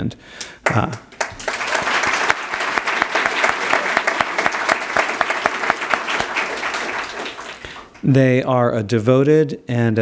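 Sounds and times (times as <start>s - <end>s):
audience applauding: 0.6s - 8.1s.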